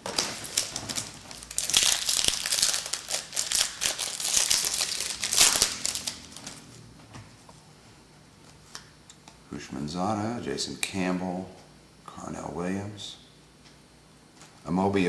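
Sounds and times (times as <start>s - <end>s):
wrapper being torn and crumpled: 0.0s - 6.7s.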